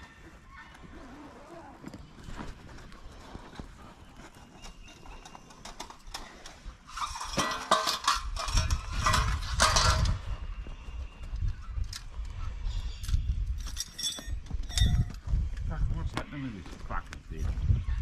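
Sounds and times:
tent poles clattering: 0:01.0 - 0:10.4, 0:13.6 - 0:15.2.

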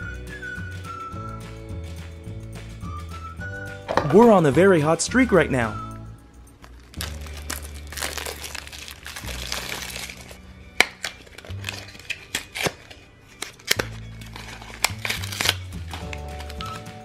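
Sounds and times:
background music with bass: 0:00.0 - 0:11.9
plastic wrapper crinkling: 0:06.6 - 0:17.0.

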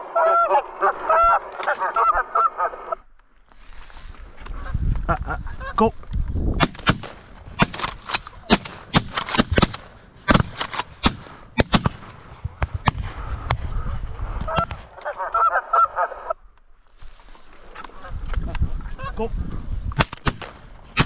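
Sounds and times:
geese honking: 0:00.0 - 0:03.1, 0:14.5 - 0:16.4
wind rumbling on microphone: 0:04.0 - 0:08.9, 0:12.3 - 0:15.0, 0:17.1 - 0:21.0.

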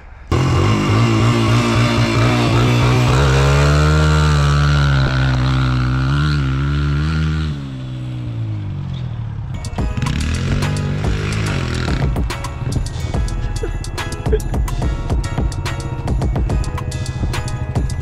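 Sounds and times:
engine revving: 0:00.3 - 0:13.3.

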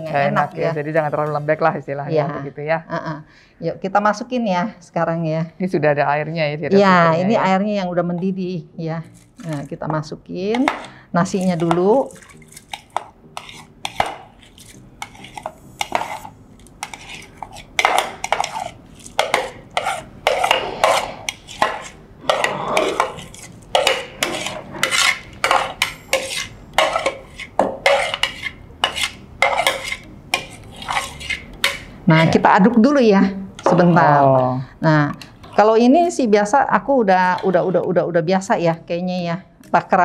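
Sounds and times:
spoon scraping cookware: 0:09.1 - 0:32.4, 0:35.2 - 0:36.2.

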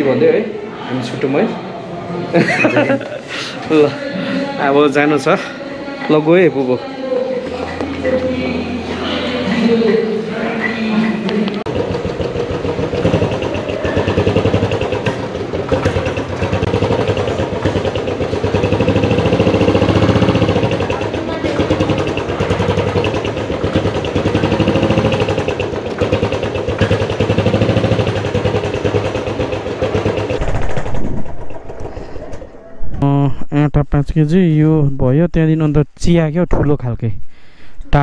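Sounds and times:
motorcycle engine revving: 0:11.4 - 0:32.3.

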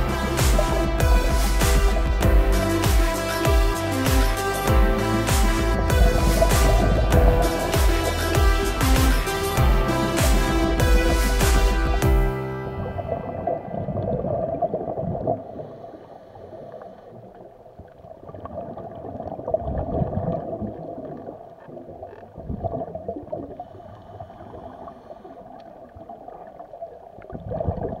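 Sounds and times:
low underwater rumble: 0:00.0 - 0:28.0
underwater bubbles gurgling: 0:05.5 - 0:07.9, 0:12.7 - 0:28.0.

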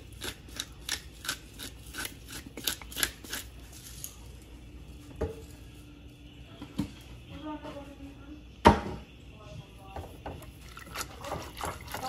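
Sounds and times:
pepper mill grinding: 0:00.0 - 0:04.2.

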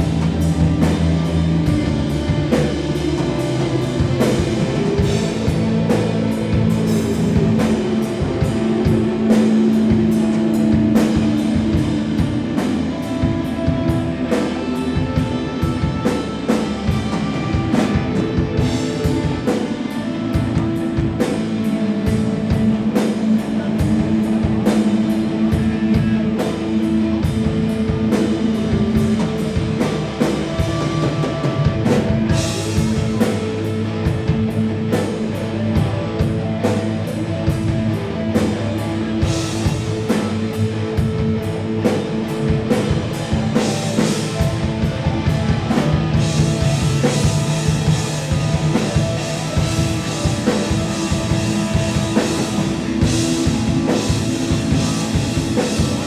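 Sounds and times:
drum kit: 0:00.0 - 0:56.0
electric guitars chords: 0:00.0 - 0:56.0.

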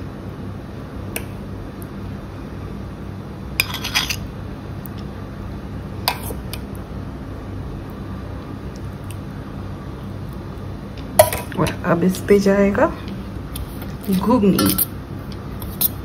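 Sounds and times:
steady low hum: 0:00.0 - 0:16.0
utensils clinking against dish: 0:03.6 - 0:04.2, 0:14.5 - 0:14.9.

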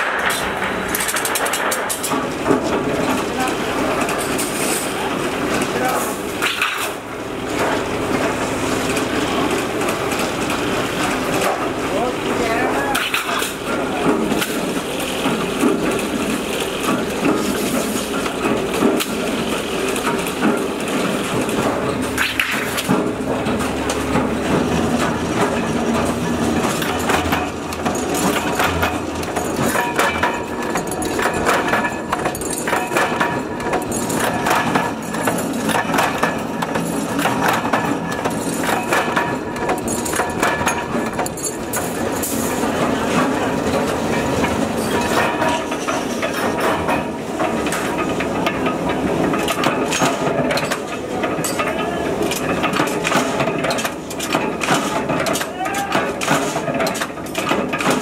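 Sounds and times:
metal shear cutting steel sheet: 0:00.0 - 0:02.2
punch press clacking: 0:44.4 - 0:58.0.

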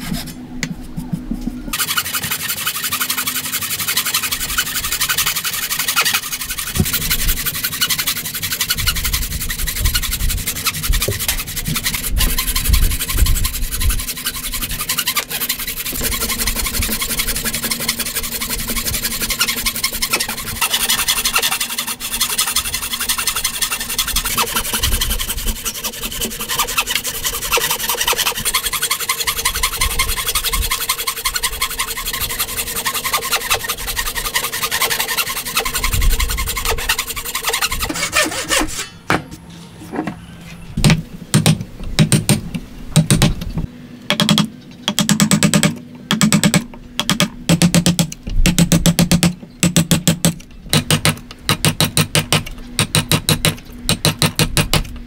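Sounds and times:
hand saw cutting wood: 0:01.7 - 0:39.0.

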